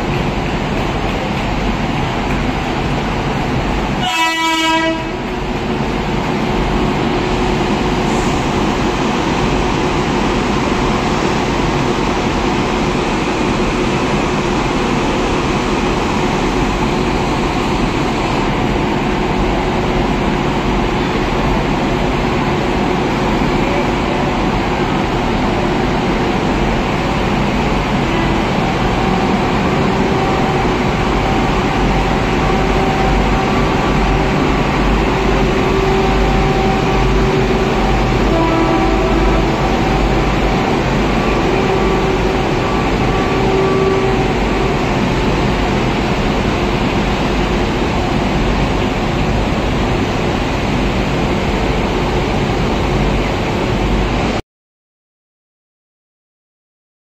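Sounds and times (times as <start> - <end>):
steady tone: 25.4 - 47.5.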